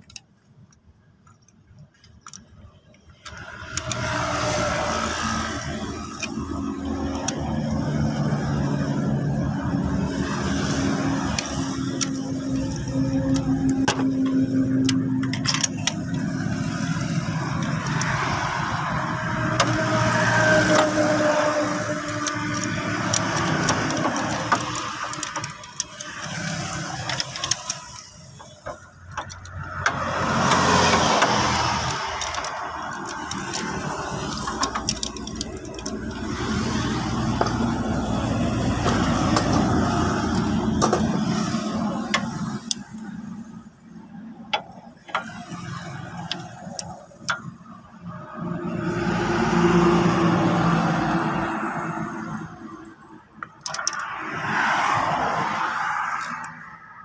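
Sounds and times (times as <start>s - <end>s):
metallic socket clicks and knocks: 0.0s - 4.6s, 11.3s - 41.4s, 42.0s - 43.1s, 53.4s - 54.1s.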